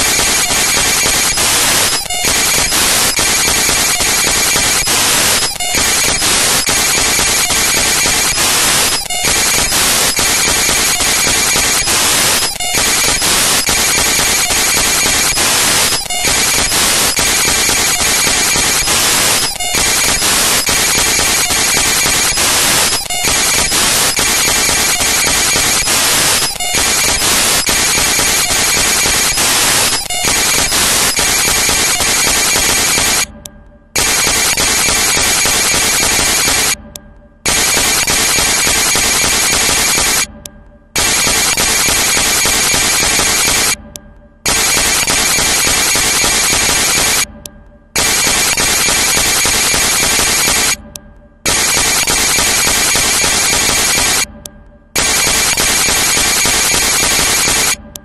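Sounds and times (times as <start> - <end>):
loud harsh static hiss: 0.0 - 33.2.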